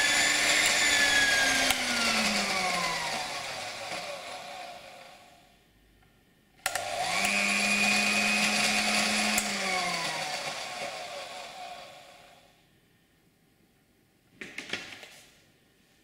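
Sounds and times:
hand mixer motor whining: 0.0s - 5.4s, 6.7s - 12.4s.

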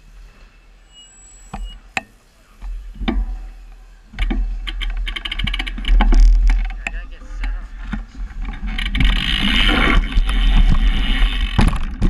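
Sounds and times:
sharp clicks and knocks: 1.5s - 12.0s
bicycle freewheel ratcheting: 3.0s - 6.9s, 8.4s - 12.0s.

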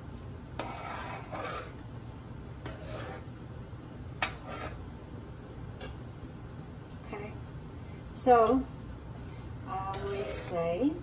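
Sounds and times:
steady low hum: 0.0s - 11.0s
spoon swishing through liquid: 0.6s - 1.8s, 2.6s - 3.4s, 4.2s - 4.8s.

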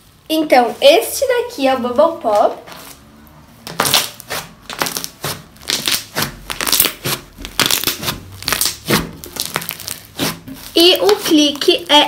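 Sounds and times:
slime squeezed popping: 3.7s - 12.0s.

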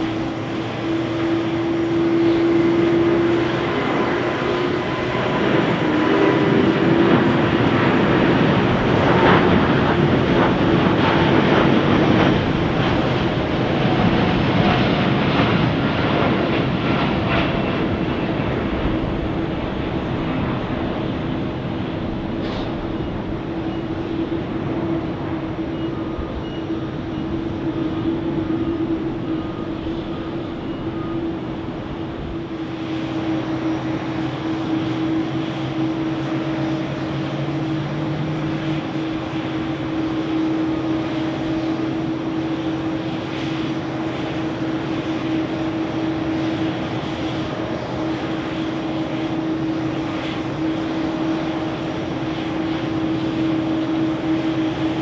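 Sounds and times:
jet airliner taking off: 0.0s - 55.0s.

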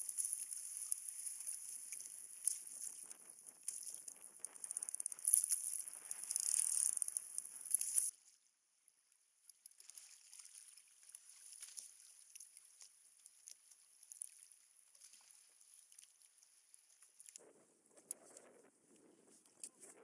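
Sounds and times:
small splashes and ticks: 0.0s - 20.0s
water lapping against a kayak: 9.7s - 17.4s.

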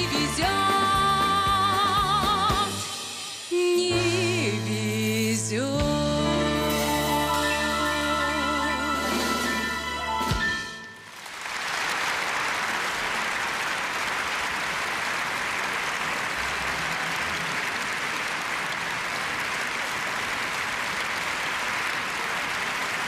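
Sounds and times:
audience applauding: 10.8s - 23.0s.

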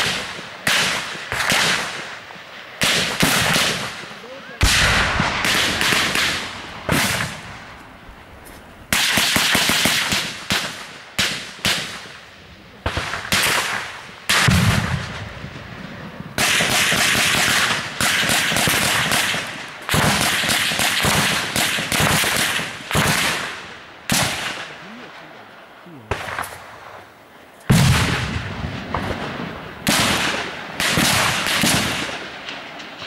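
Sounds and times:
automatic gunfire bursts: 4.6s - 7.4s, 16.4s - 24.7s.

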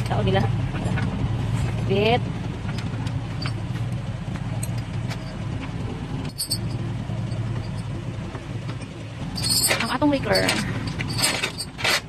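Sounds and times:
truck engine idling: 0.0s - 12.0s
tow chain clinking: 2.6s - 12.0s.

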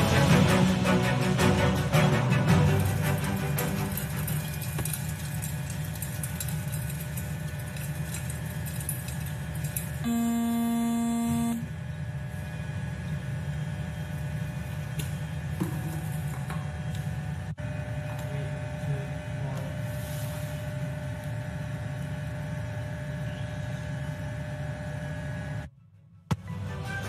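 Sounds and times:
music: 0.0s - 4.8s, 25.7s - 27.0s
steady low hum: 0.0s - 25.8s
buzzing beep: 10.0s - 11.7s.

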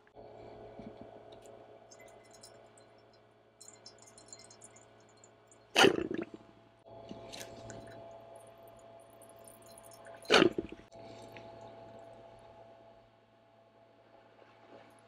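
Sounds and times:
faint steady hum: 0.0s - 15.0s
squeeze bottle squirts: 10.3s - 10.8s.

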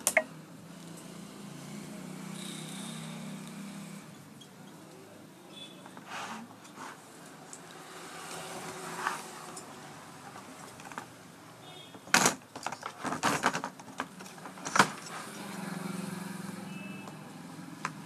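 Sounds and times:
plastic casing knocking and rattling: 12.0s - 15.0s.

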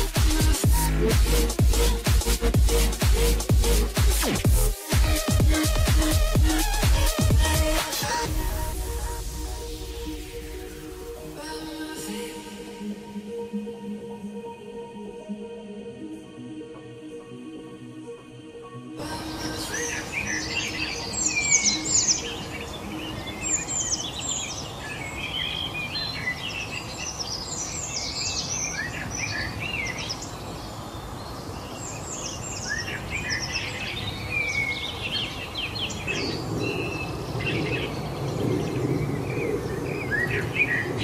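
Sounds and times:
songbirds chirping and singing: 0.0s - 41.0s
low rumble: 8.3s - 11.4s.

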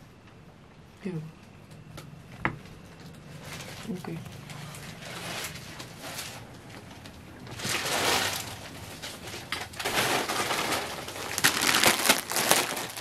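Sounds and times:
fabric rustling and crinkling: 3.3s - 13.0s.

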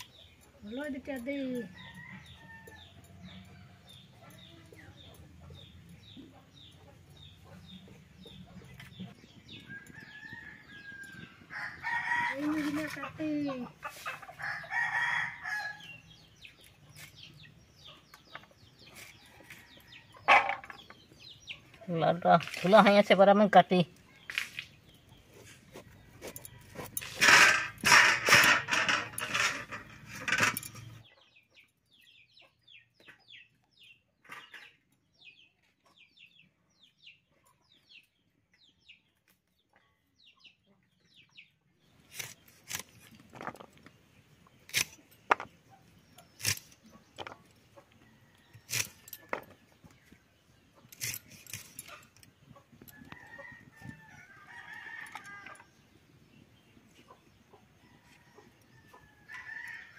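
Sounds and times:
chickens clucking: 3.3s - 9.9s, 12.5s - 14.6s, 42.3s - 54.0s, 54.8s - 59.2s
blade crunching through gourd: 42.0s - 43.6s, 44.6s - 45.5s, 46.2s - 46.9s.

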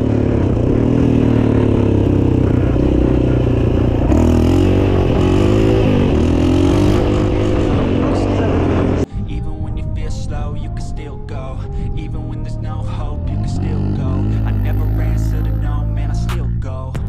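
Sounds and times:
quad bike engine revving: 0.0s - 9.1s, 12.2s - 16.6s.

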